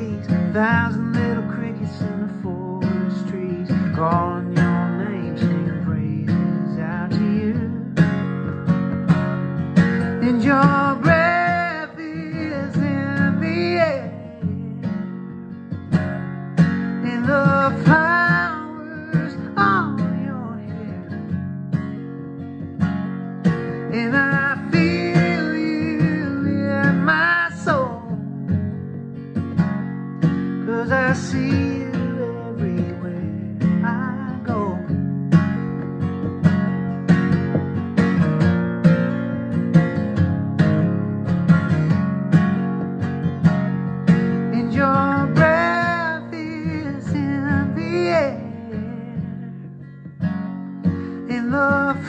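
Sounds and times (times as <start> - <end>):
man singing: 0.0 - 8.6, 9.8 - 15.3, 15.9 - 21.4, 23.4 - 28.8, 30.2 - 35.6, 44.0 - 52.0
acoustic guitar strumming: 0.0 - 52.0.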